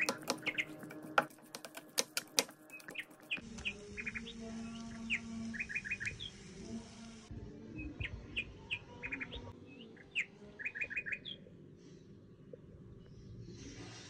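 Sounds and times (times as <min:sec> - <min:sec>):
small birds chirping: 0:00.0 - 0:12.0
frying hiss: 0:03.4 - 0:07.3.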